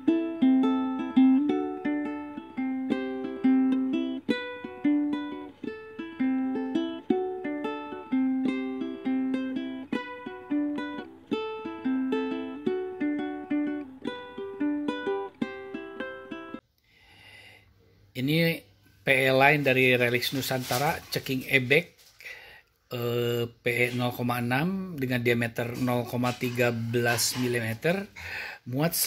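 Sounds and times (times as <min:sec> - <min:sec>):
plucked string melody: 0:00.0 - 0:16.6.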